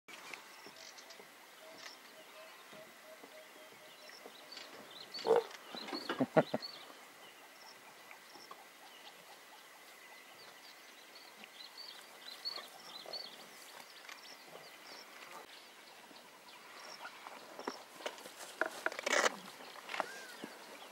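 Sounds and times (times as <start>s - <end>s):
birds chirping: 0.1s - 20.9s
lions growling and snarling: 5.2s - 5.6s.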